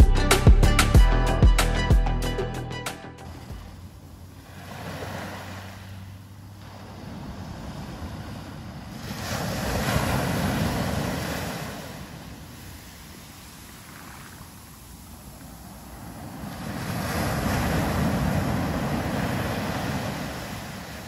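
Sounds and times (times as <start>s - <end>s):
small waves breaking on beach: 3.3s - 21.0s.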